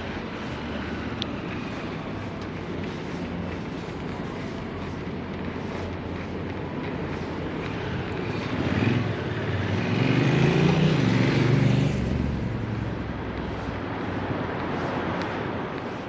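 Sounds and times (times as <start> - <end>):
outdoor background noise: 0.0 - 16.0
engine passing by: 7.1 - 16.0.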